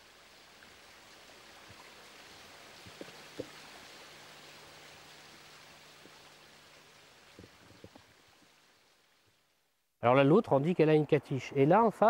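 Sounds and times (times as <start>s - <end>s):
stream water rushing: 0.0s - 9.2s.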